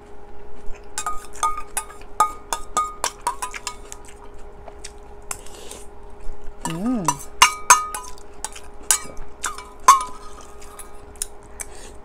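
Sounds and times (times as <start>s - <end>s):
metal spoon clinking against bowl: 1.0s - 4.0s, 6.7s - 10.9s.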